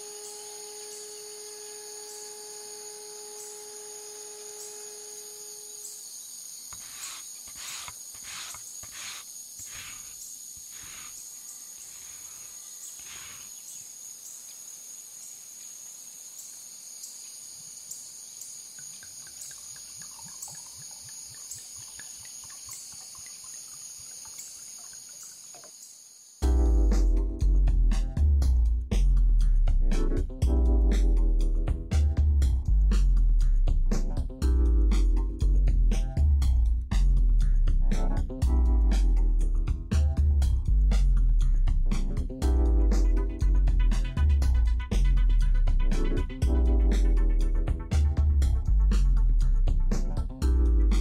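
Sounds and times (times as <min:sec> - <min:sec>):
high-pitched background whine: 0:00.0 - 0:07.3
oil trickling onto wooden board: 0:18.8 - 0:25.8.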